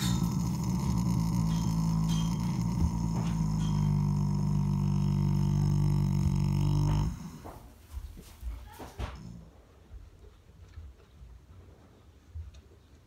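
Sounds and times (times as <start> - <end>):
horse groaning snore: 0.0 - 7.7.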